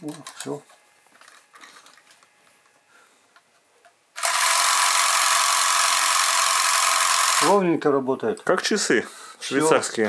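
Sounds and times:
film camera mechanism whirring: 4.2 - 7.5.

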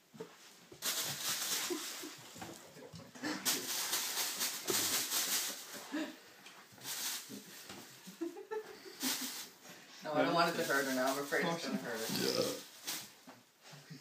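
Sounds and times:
plastic bag rustling and crinkling: 0.7 - 5.9, 6.6 - 8.3, 8.9 - 13.2.

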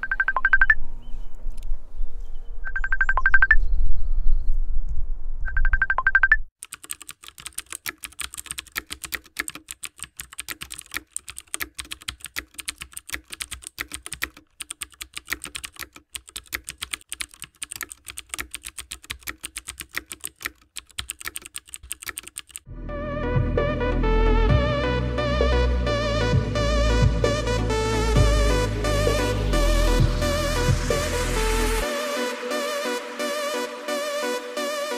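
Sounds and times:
fast keyboard typing: 0.0 - 0.8, 5.5 - 22.7
music: 22.7 - 34.9.

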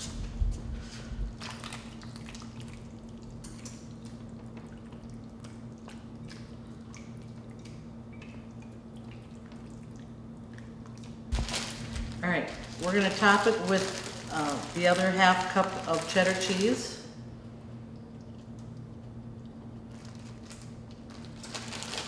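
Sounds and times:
steady low hum: 0.0 - 22.0
soft wet plops: 1.5 - 11.2.

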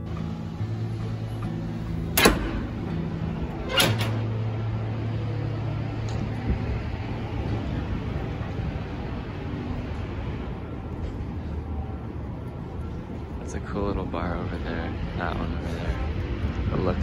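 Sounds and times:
steady low hum: 0.0 - 17.0
door shutting and latching: 2.1 - 2.9, 3.5 - 4.4
door push bar clack: 2.2 - 2.6.

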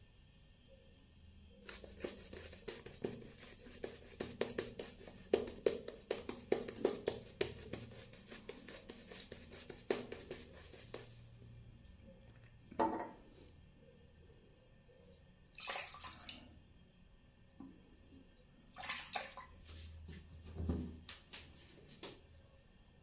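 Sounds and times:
shaving brush scratchy strokes: 1.6 - 11.2.

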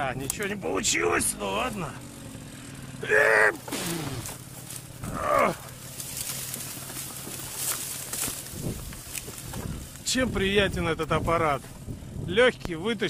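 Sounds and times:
low steady hum: 0.0 - 12.6
grass rustling: 0.0 - 13.0
man grunting with effort: 3.0 - 4.4, 5.0 - 5.7.

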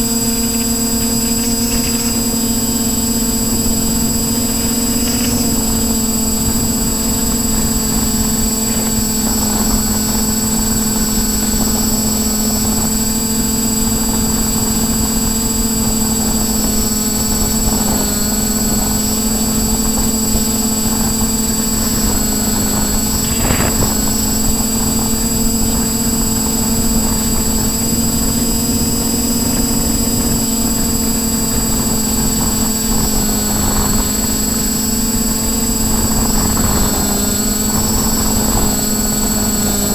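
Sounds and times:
quadcopter motors whining: 0.0 - 39.9
rush of air: 21.5 - 26.2.

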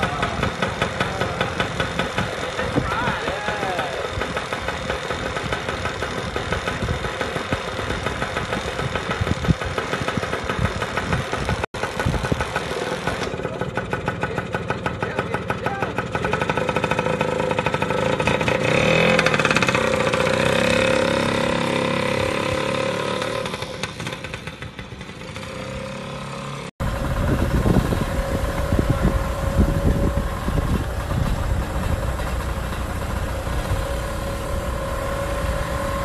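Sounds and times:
motor scooter engine revving: 0.0 - 36.0
low wind rumble: 26.8 - 36.0.

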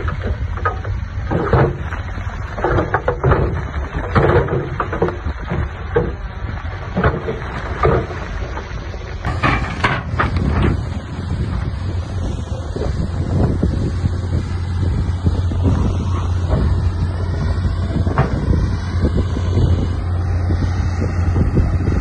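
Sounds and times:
knocks and clatter of stone: 0.0 - 10.9
diesel engine rumble: 0.0 - 22.0.

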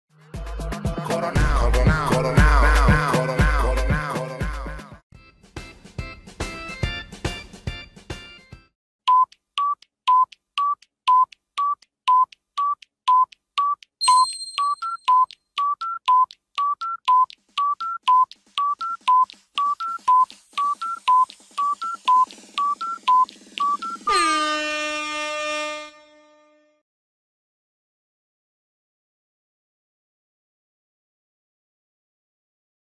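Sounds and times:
countdown timer beeps: 9.1 - 24.6
loud horn-like buzzer: 24.0 - 26.8.

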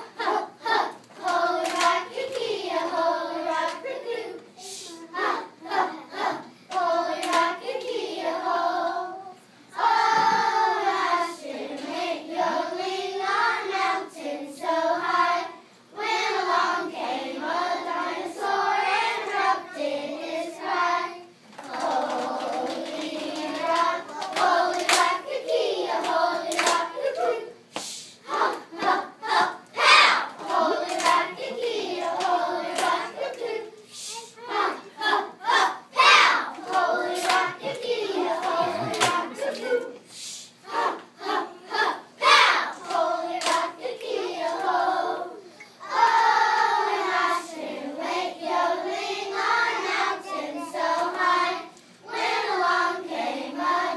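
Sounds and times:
children singing: 0.0 - 15.4, 34.4 - 39.9, 40.7 - 53.9
hand claps: 1.2 - 2.4, 6.7 - 7.5, 21.5 - 25.2, 26.0 - 27.9, 30.4 - 31.6, 36.6 - 39.7, 42.9 - 43.7.

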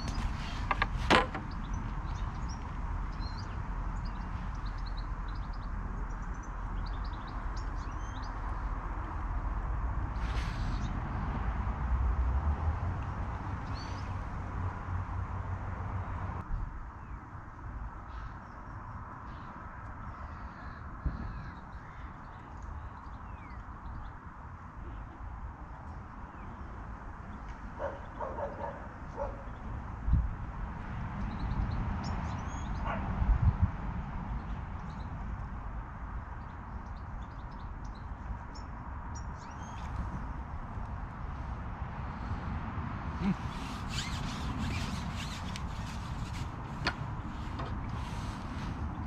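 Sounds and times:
small birds chirping: 0.0 - 8.7, 43.2 - 49.0.

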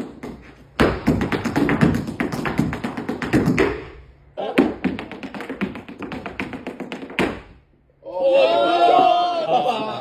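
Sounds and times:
dance shoes tapping on concrete: 0.0 - 7.6.

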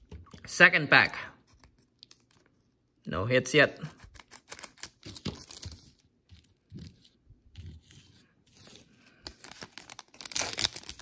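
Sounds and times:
foil wrapper crinkling and tearing: 4.0 - 5.8, 9.2 - 11.0.

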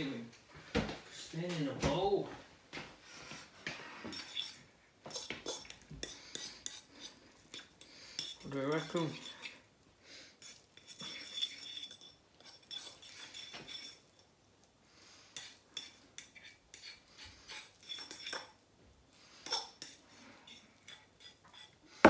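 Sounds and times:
metal spoon clinking and scraping bowl: 4.0 - 9.7, 10.4 - 14.3, 15.3 - 18.6, 19.4 - 22.0.

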